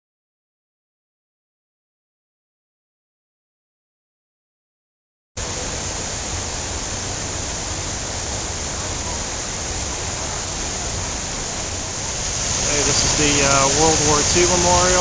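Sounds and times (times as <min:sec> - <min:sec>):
fountain water splashing: 0:05.4 - 0:15.0.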